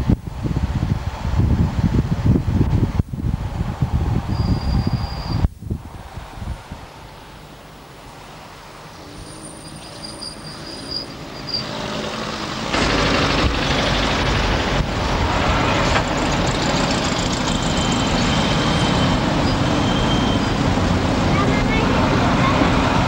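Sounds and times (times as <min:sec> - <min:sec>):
bus and van passing close: 0:00.0 - 0:23.0
city street traffic: 0:00.0 - 0:23.0
faint high whistle: 0:04.3 - 0:05.5, 0:17.8 - 0:20.5.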